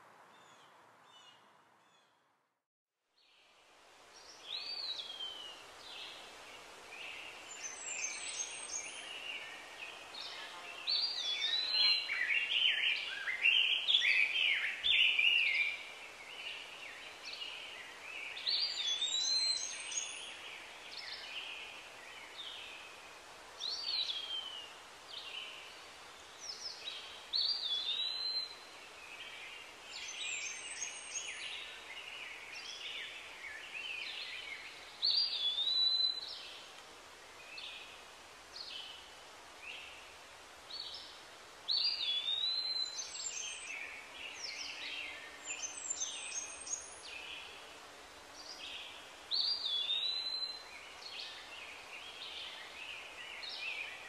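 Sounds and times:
steady outdoor hiss: 0.0s - 54.0s
birds calling and singing: 4.2s - 23.0s, 23.6s - 36.7s, 40.8s - 47.5s, 48.4s - 54.0s.

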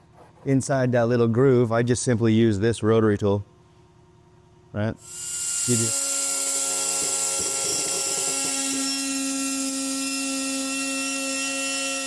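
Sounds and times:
pneumatic die grinder whining: 5.0s - 12.0s.

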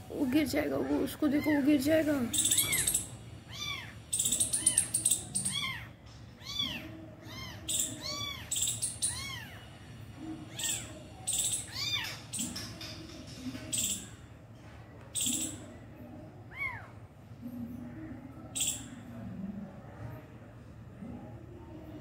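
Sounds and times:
kitten chittering: 2.4s - 9.6s, 10.5s - 12.6s
kitten mewing: 10.5s - 11.0s.

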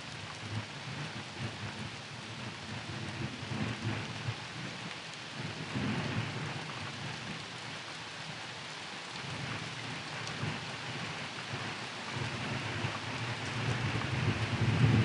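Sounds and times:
rain hissing: 0.0s - 15.0s
low thunder rumbling: 11.6s - 15.0s.

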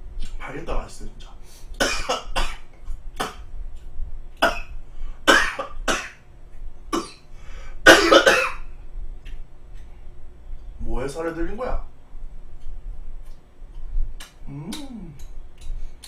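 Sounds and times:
man coughing: 1.8s - 2.6s, 5.3s - 6.2s, 7.9s - 8.6s.

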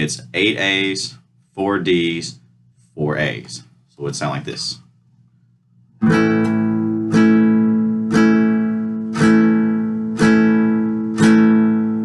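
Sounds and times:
acoustic guitar strumming: 6.0s - 12.0s.

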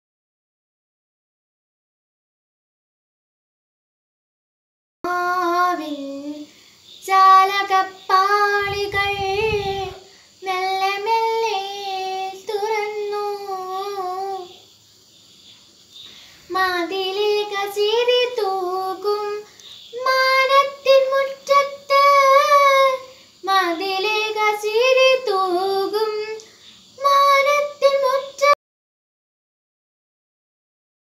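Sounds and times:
girl singing solo: 5.1s - 14.6s, 16.4s - 28.6s.

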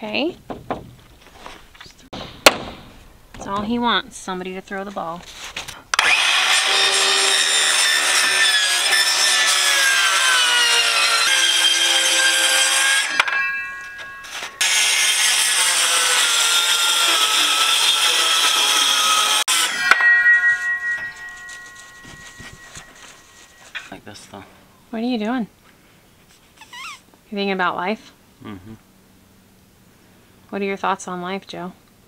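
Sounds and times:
circular saw cutting wood: 5.9s - 23.9s.

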